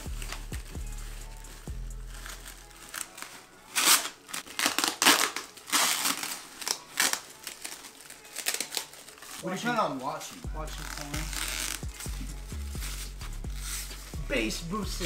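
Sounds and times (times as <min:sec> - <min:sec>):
background music with bass beat: 0:00.0 - 0:02.8, 0:10.4 - 0:15.0
packaging crinkling and rustling: 0:02.0 - 0:11.9.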